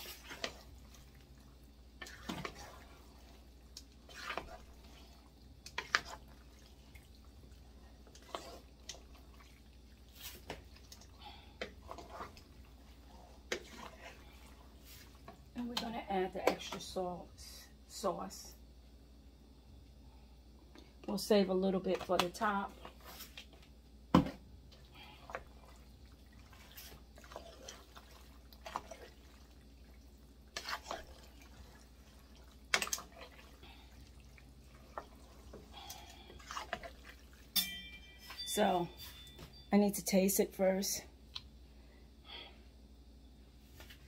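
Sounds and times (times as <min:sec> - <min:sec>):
pasta in sauce squelching: 0:00.0 - 0:15.5, 0:24.7 - 0:37.6.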